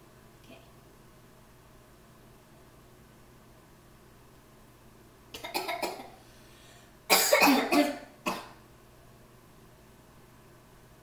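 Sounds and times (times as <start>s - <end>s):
person coughing: 5.4s - 6.2s, 7.1s - 8.6s.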